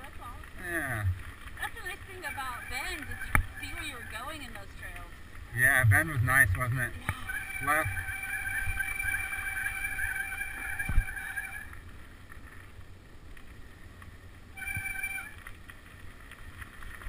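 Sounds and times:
bike tyres rumbling on dirt: 0:00.0 - 0:07.2
high steady whine from bike: 0:00.0 - 0:17.0.

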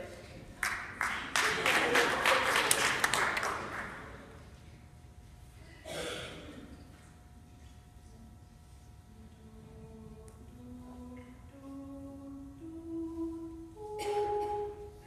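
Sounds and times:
audience applause: 0:00.6 - 0:04.2.

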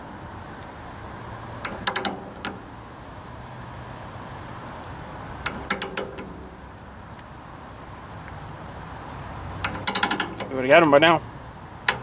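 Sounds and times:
ratchet wrench clicking: 0:01.6 - 0:02.7, 0:05.4 - 0:06.6, 0:09.6 - 0:10.8, 0:11.8 - 0:12.0.

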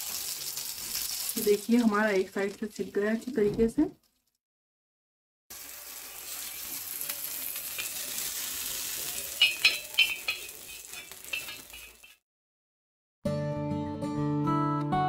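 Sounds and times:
oil sizzling on a hot pan: 0:00.0 - 0:03.4, 0:05.5 - 0:12.2.

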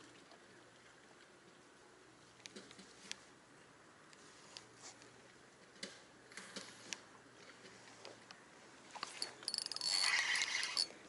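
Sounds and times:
fishing reel clicks: 0:09.1 - 0:11.0.

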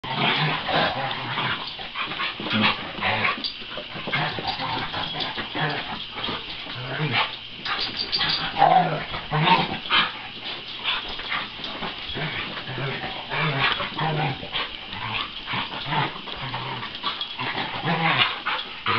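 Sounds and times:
dogs yipping and whining: 0:07.1 - 0:10.3.

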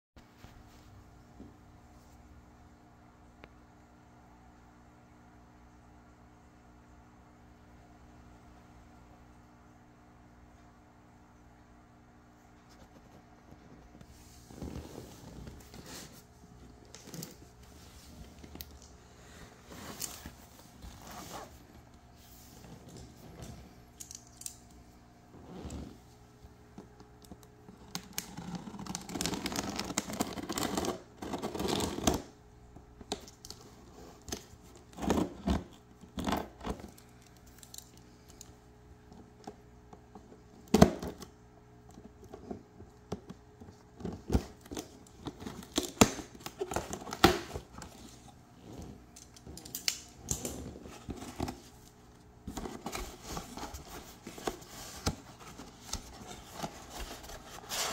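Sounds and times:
tape and cardboard tearing: 0:27.9 - 0:32.3.

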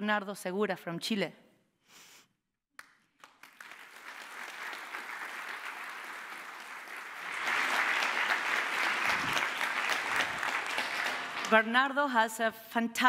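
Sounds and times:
audience applauding: 0:02.8 - 0:11.7.

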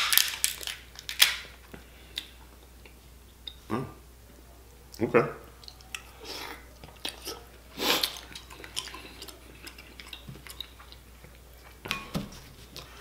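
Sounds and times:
crab shells cracking: 0:00.0 - 0:01.6.

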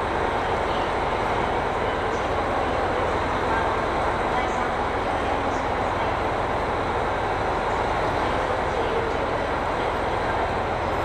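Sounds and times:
diesel railcar engine idling: 0:00.0 - 0:11.0
fan and exhaust noise: 0:00.0 - 0:11.0.

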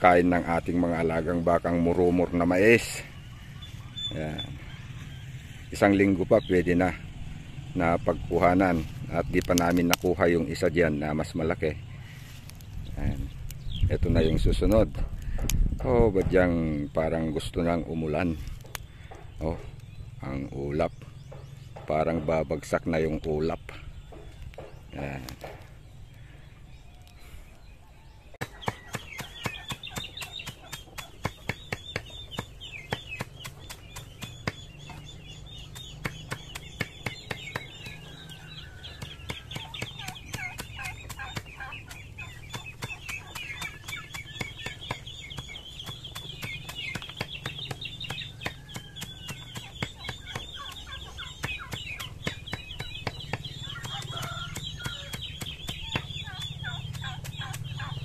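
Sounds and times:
chickens clucking: 0:00.0 - 0:58.0
chopping greens on concrete: 0:28.4 - 0:58.0.

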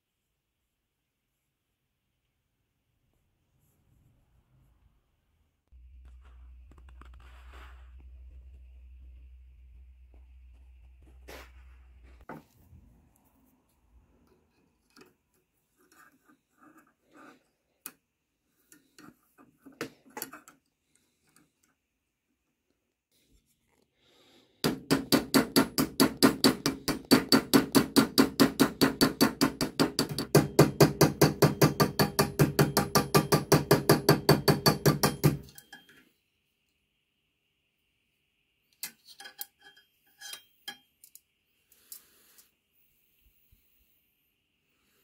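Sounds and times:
hammer striking metal rivet: 0:24.7 - 0:35.9.

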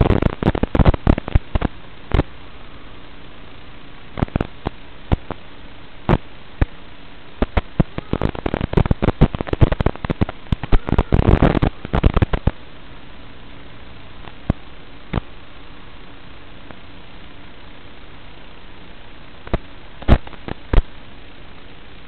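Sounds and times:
crackling pops: 0:00.0 - 0:02.3, 0:04.1 - 0:05.4, 0:06.1 - 0:06.8, 0:07.4 - 0:12.6, 0:14.2 - 0:15.3, 0:19.4 - 0:21.0
static hiss: 0:00.0 - 0:22.0.

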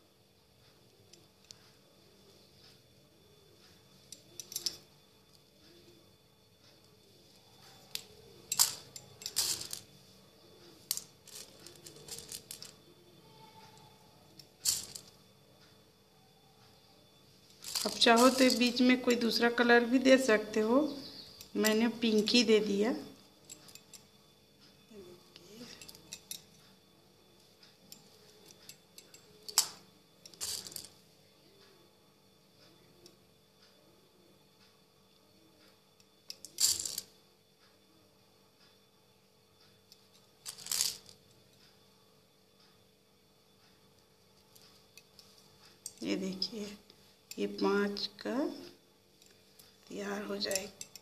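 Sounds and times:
plastic beads rattling on steel plate: 0:07.8 - 0:09.9, 0:10.8 - 0:12.8, 0:14.6 - 0:15.2, 0:17.5 - 0:19.2, 0:28.4 - 0:31.0, 0:36.3 - 0:37.1, 0:40.4 - 0:41.1, 0:49.8 - 0:51.0.

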